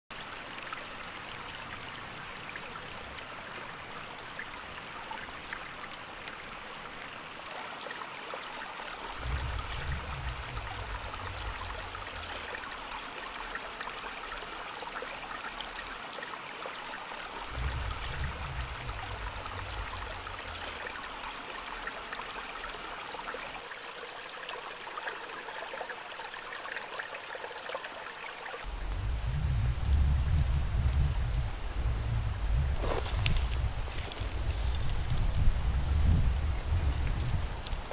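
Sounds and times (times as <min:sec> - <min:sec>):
stream running over gravel: 0:00.1 - 0:37.9
low rumbles: 0:09.2 - 0:12.8, 0:17.5 - 0:21.2, 0:28.7 - 0:37.9.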